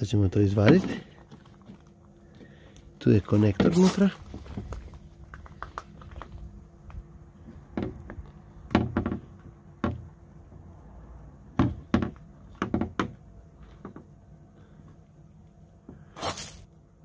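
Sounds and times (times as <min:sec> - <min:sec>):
sharp knocks and taps: 0:07.7 - 0:10.1, 0:11.6 - 0:13.2.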